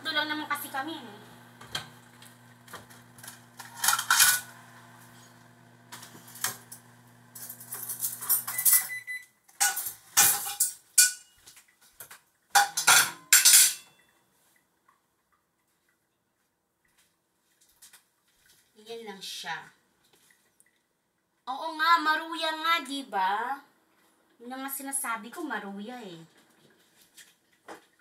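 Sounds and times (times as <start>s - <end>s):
low steady hum: 0.0s - 9.2s
dishes and cutlery clinking: 7.5s - 9.0s, 9.6s - 11.6s, 12.6s - 14.1s.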